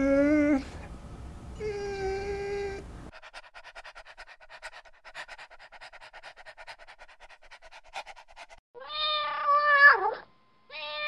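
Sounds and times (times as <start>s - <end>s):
dog panting: 2.8s - 8.6s
cat meowing: 8.8s - 11.0s.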